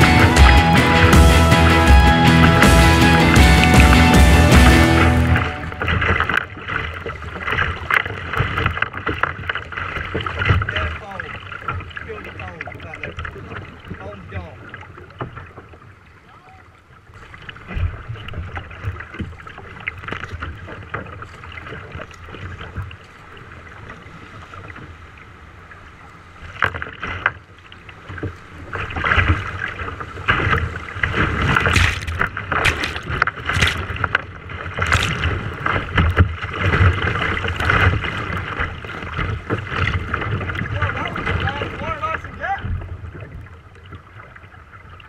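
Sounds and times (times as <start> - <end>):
rushing whitewater: 0.0 - 15.1, 27.6 - 45.0
waves splashing against kayak hull: 0.0 - 45.0.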